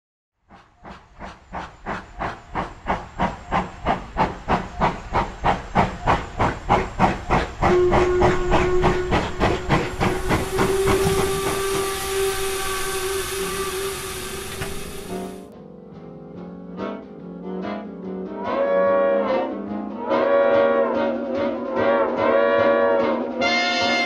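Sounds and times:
steam locomotive chuffing: 0.4 - 15.5
steam whistle: 7.6 - 15.5, 18.4 - 24.0.

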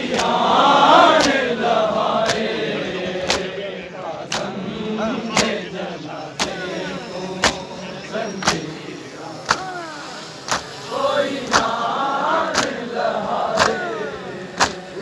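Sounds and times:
men chanting a lament: 0.0 - 15.0
chest-beating slaps: 1.1 - 1.5, 2.2 - 2.5, 3.2 - 3.6, 4.3 - 4.6, 5.3 - 5.7, 6.4 - 6.6, 7.4 - 7.6, 8.4 - 8.7, 9.4 - 9.7, 11.5 - 11.8, 12.5 - 12.8, 13.6 - 13.8, 14.6 - 14.9.

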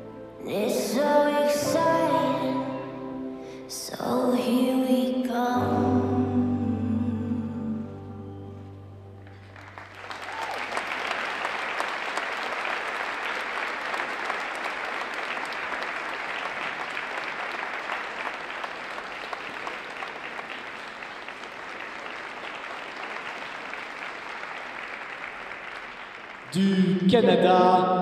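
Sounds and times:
audience applauding: 9.2 - 26.8.

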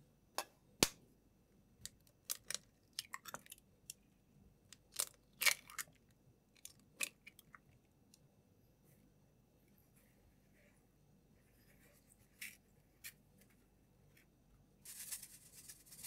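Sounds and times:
eggshells crackling and snapping: 1.8 - 4.0, 4.7 - 7.7.

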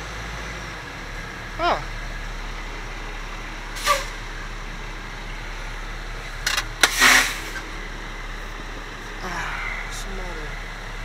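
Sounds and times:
truck idling: 0.0 - 11.0
short loud hiss: 6.8 - 7.6.

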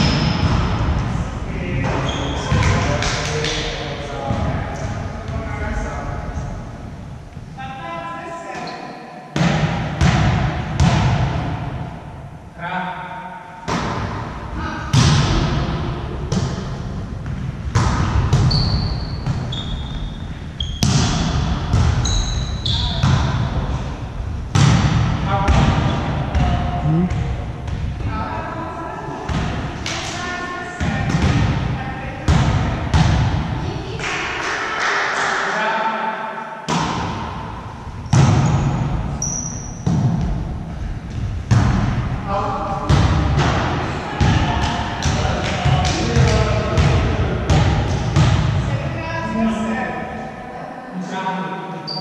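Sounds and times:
hands slapping volleyball: 1.9 - 3.7, 29.4 - 30.2
shoe squeaks: 2.0 - 2.5, 18.4 - 21.0, 22.0 - 23.0, 38.5 - 39.9
volleyball struck by hands: 9.4 - 11.6, 13.7 - 14.3, 24.5 - 27.9, 32.3 - 33.5, 36.7 - 37.4, 41.5 - 42.0.

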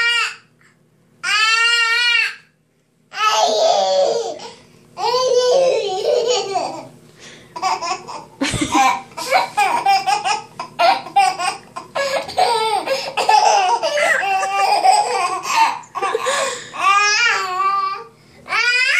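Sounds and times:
baby laughing and giggling: 3.2 - 6.9, 7.6 - 18.0.

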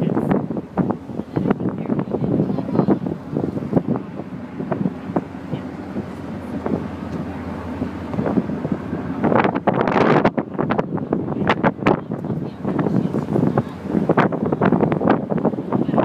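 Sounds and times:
low rumble: 0.0 - 16.0
wind buffeting microphone: 0.0 - 16.0.

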